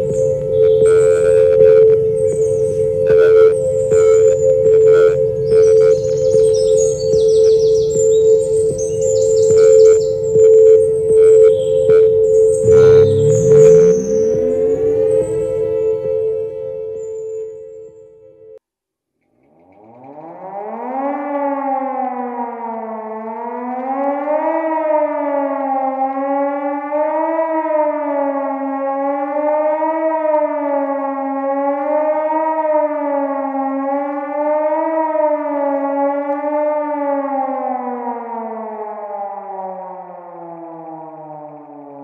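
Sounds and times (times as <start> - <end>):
warning siren wailing: 0.0 - 18.6, 19.6 - 42.0.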